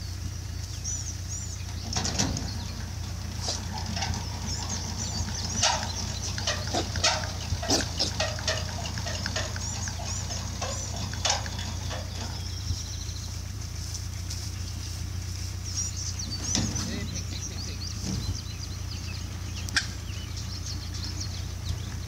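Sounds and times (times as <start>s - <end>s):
pigs grunting: 3.3s - 12.3s.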